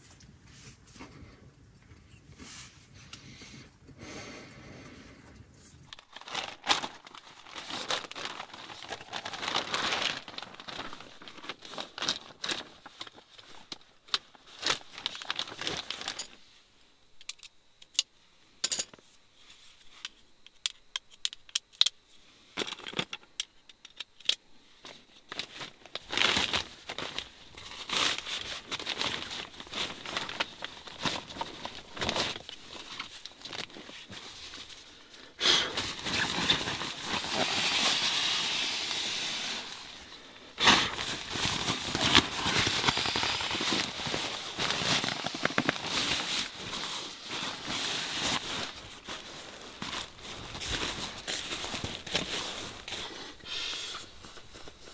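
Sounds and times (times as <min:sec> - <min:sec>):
foil pad and nylon rustling: 0:05.8 - 0:16.5, 0:24.8 - 0:54.9.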